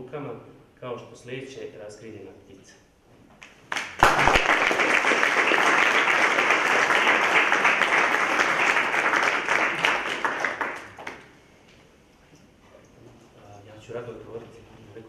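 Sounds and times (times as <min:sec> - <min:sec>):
audience applauding: 0:03.7 - 0:11.3.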